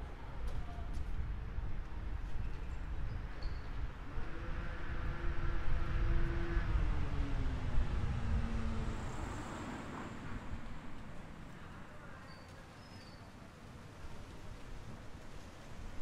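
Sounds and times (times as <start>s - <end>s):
road noise: 0.0s - 16.0s
vehicle engine passing: 4.1s - 11.5s.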